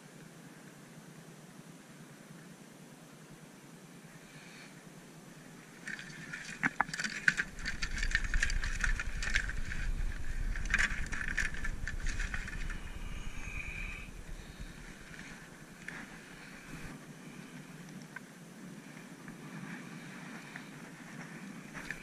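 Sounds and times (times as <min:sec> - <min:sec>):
tackle clattering and crinkling: 0:05.8 - 0:16.9, 0:21.2 - 0:22.0
microphone low rumble: 0:07.5 - 0:17.0.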